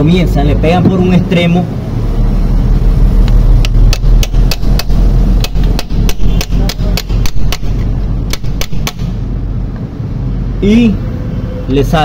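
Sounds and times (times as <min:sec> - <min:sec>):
hammer tapping metal punch: 0:03.6 - 0:09.1.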